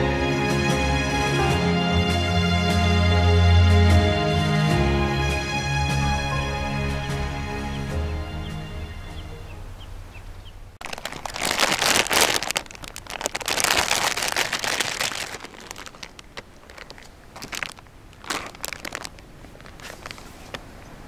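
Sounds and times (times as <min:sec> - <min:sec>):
packaging crinkling: 0:10.8 - 0:20.6
bread crackling on wire grill: 0:10.9 - 0:20.2.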